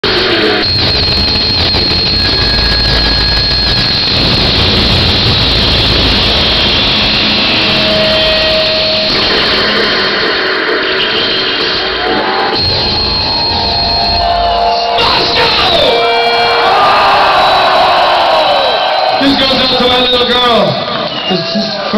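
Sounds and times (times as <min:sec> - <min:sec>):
high thin whine: 0:00.1 - 0:15.5
arena crowd roar: 0:13.2 - 0:21.9.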